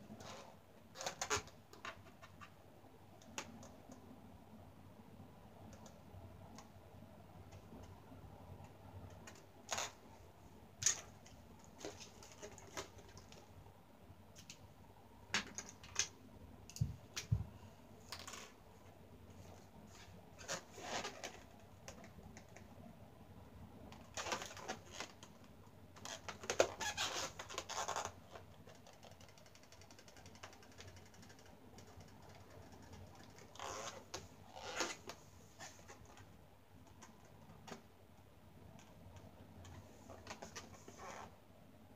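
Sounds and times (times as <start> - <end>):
balloon handled in hands: 32.7 - 36.3.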